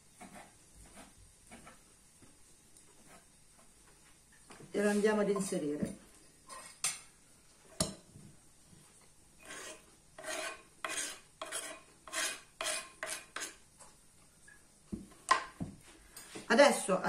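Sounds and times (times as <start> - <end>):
knife scraping wooden board: 0.2 - 1.8, 9.4 - 13.6.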